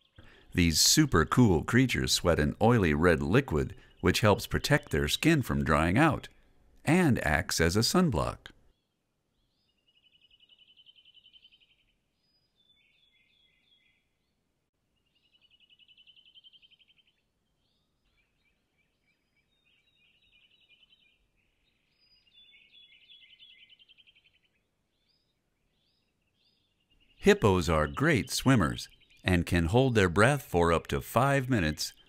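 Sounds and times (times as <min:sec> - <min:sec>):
soft bird chirps: 0:08.2 - 0:29.9.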